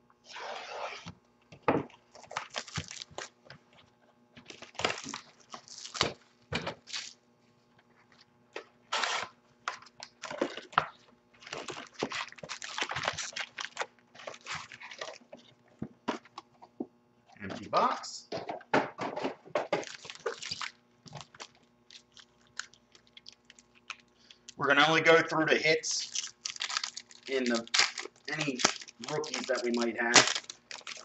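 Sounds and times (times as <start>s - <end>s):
foil packs crinkling: 2.1s - 3.4s, 4.4s - 6.2s, 6.8s - 7.2s, 8.9s - 15.5s, 19.7s - 24.6s, 25.8s - 31.0s
tearing cardboard and wrapper: 2.1s - 3.4s, 4.5s - 6.2s, 6.8s - 7.2s, 8.9s - 10.8s, 11.4s - 15.3s, 19.7s - 24.0s, 25.9s - 31.0s.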